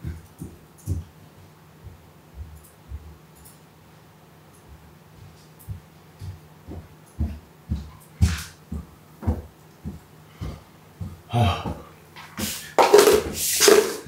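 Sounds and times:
footsteps on wooden floor: 0:00.0 - 0:01.1, 0:04.7 - 0:13.9
rustling noise: 0:12.2 - 0:14.0.

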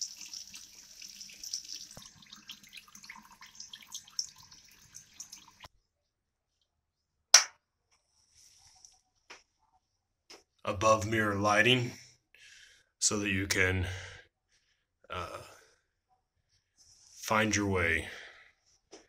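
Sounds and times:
water drips and small knocks: 0:00.0 - 0:05.7
water running into sink: 0:00.0 - 0:05.7.

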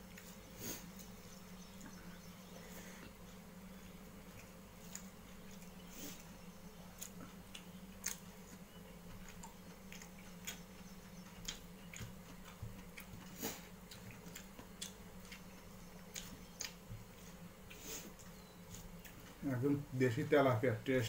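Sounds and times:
steady low hum: 0:00.0 - 0:21.0
chewing smacks: 0:04.2 - 0:19.4.

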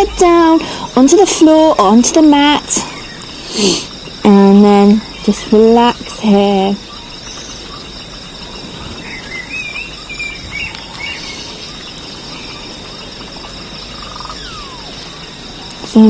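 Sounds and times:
insect-like hiss: 0:00.0 - 0:16.0
bird chirps: 0:05.0 - 0:15.8.

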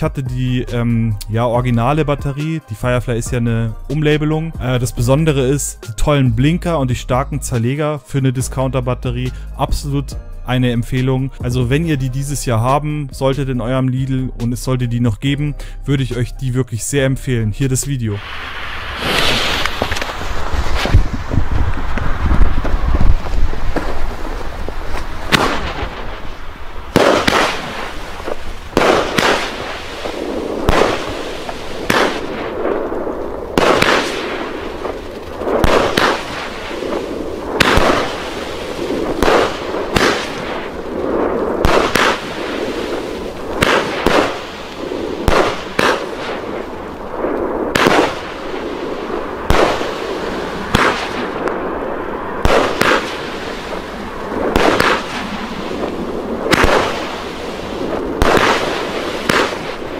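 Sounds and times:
firework bangs: 0:18.1 - 0:59.9
firework hiss: 0:18.1 - 0:59.9.

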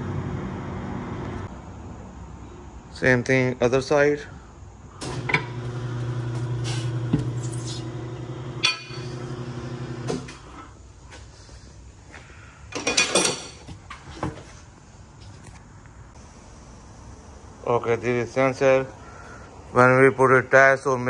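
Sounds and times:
tire changer motor humming: 0:00.0 - 0:01.5, 0:05.0 - 0:10.6.

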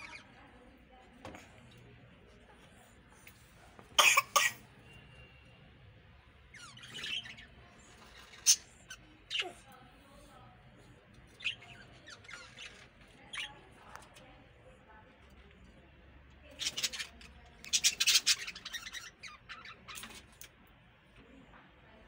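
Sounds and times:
budgerigars chirping: 0:16.6 - 0:20.1.

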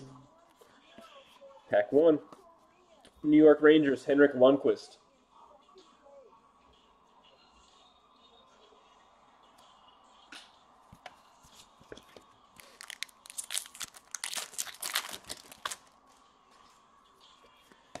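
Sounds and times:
foil wrapper crinkling: 0:12.6 - 0:16.0.

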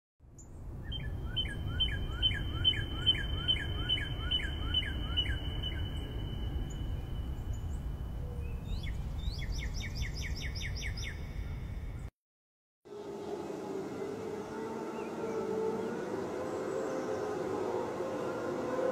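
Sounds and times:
low steady rumble: 0:00.4 - 0:09.3
bird chirping: 0:00.4 - 0:12.1.

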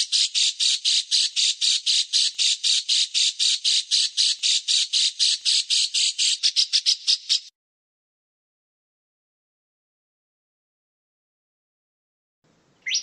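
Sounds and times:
songbird scratchy call: 0:00.0 - 0:07.5.

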